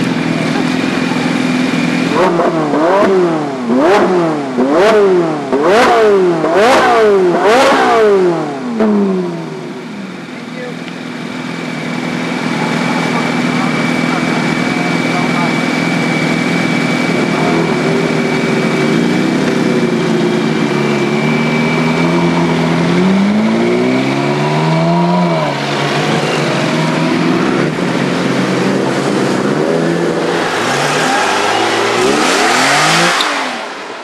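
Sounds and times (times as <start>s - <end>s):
passing car engine revving: 0.0s - 10.0s, 10.9s - 34.0s
sports car engine revving: 0.0s - 34.0s.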